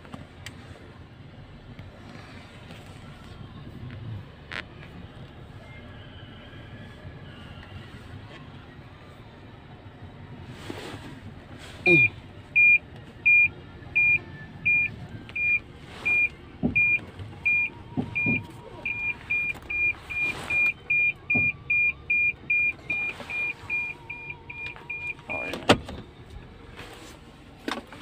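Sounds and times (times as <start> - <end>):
parking sensor beeping: 11.8 - 26.3.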